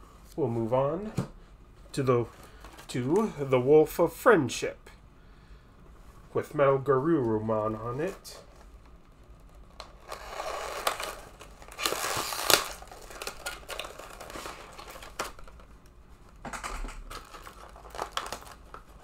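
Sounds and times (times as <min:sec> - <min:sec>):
plastic packaging crinkling: 0:07.8 - 0:19.0.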